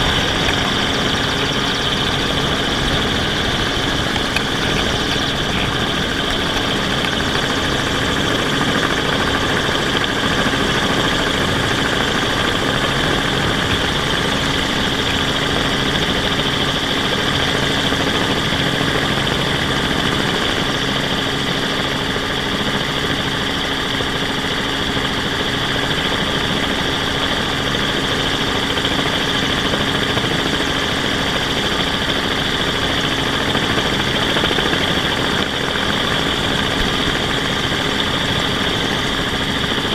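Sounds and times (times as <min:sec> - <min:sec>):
drone motors whining: 0:00.0 - 0:07.7.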